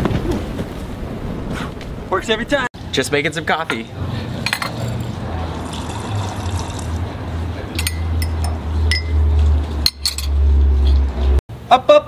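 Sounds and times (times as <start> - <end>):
liquid pouring into cup: 4.6 - 7.0.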